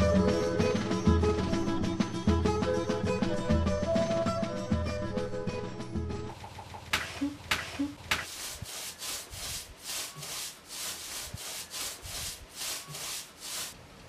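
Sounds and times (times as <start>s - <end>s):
sharp taps: 6.9s - 8.3s
clay scraping against board: 7.0s - 13.8s.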